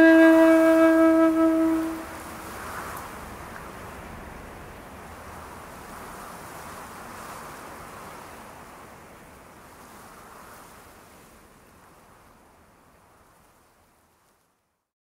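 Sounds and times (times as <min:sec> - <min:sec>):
wind blowing: 0:00.0 - 0:13.8.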